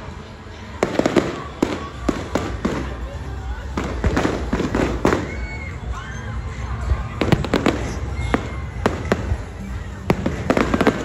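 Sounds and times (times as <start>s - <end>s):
fireworks bangs: 0.8s - 5.6s, 7.2s - 11.0s.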